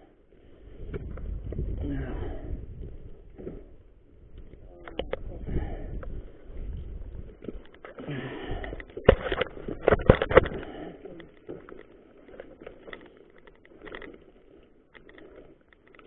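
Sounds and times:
bike rattling on gravel: 0:00.3 - 0:16.0.

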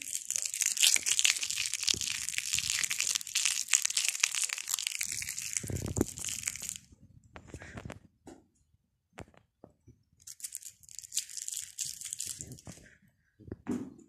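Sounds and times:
packet crinkling: 0:00.0 - 0:06.9, 0:10.2 - 0:12.9.

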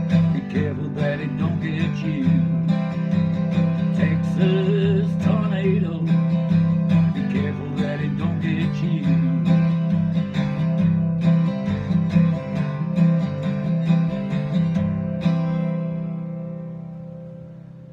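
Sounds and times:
acoustic guitar strumming: 0:00.0 - 0:17.9.

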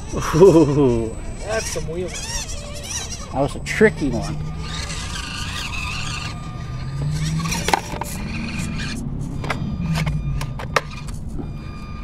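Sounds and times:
small electric motor whining: 0:00.0 - 0:12.0
toy truck clicks and knocks: 0:07.4 - 0:11.5.

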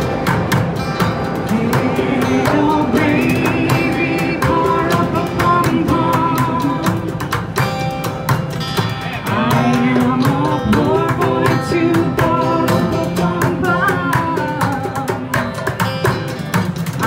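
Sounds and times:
guitar: 0:00.0 - 0:17.0
hand drums and bucket beat: 0:00.0 - 0:17.0
person singing through pa: 0:01.5 - 0:07.3, 0:09.1 - 0:15.6.

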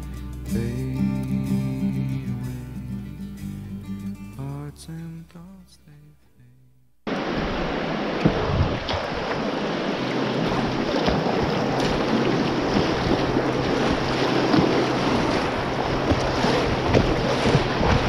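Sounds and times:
wind noise on microphone: 0:07.1 - 0:09.4, 0:10.4 - 0:18.0
rushing whitewater: 0:07.1 - 0:18.0.

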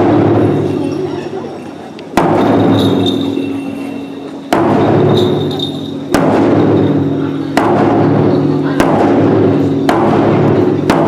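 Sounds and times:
large taiko drum strikes: 0:00.0 - 0:00.8, 0:02.1 - 0:03.1, 0:04.5 - 0:11.0.

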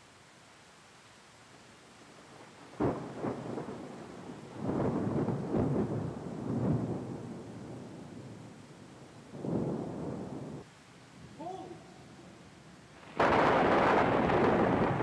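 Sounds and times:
thunder crack and rumble: 0:02.8 - 0:08.4, 0:09.4 - 0:10.7, 0:13.0 - 0:15.0.

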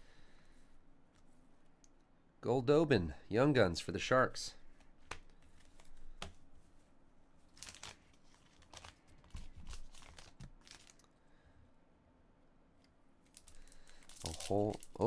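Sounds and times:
foil card packs crinkling: 0:07.5 - 0:11.1, 0:13.3 - 0:15.0.

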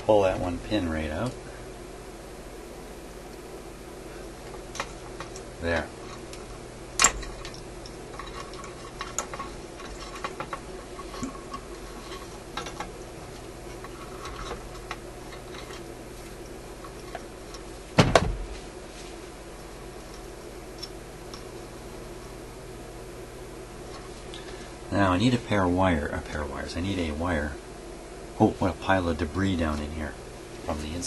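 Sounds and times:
low steady hum: 0:00.0 - 0:31.0
pliers and wires clicking on metal: 0:04.7 - 0:17.7, 0:20.0 - 0:21.5
metal clatter: 0:07.0 - 0:13.0.

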